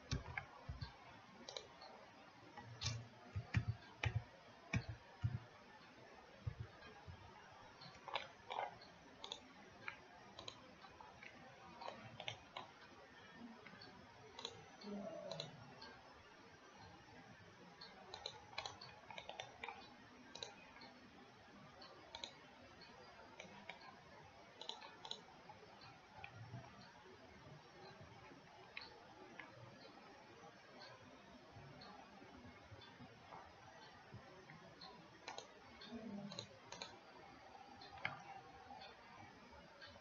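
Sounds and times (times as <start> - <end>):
computer mouse clicks: 0.0 - 16.0, 17.7 - 21.0, 21.8 - 27.0, 27.6 - 40.0.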